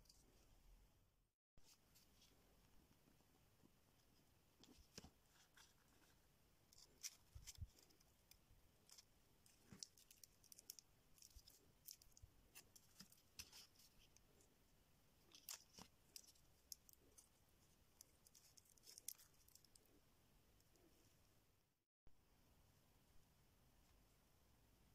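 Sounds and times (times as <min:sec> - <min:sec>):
faint clicks and rustles: 0:01.6 - 0:14.6, 0:15.2 - 0:21.1.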